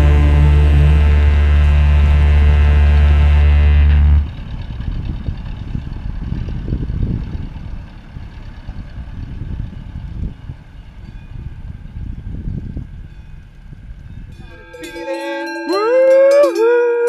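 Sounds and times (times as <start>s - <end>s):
held musical chord: 0.0s - 4.4s, 14.4s - 16.7s
uneven low rumbling noise: 0.0s - 14.3s.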